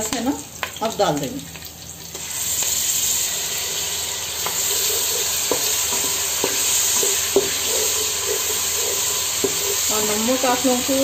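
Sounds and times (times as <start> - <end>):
onion paste sizzling in oil: 0.0 - 11.0
wooden spoon knocking on pot: 4.4 - 9.9.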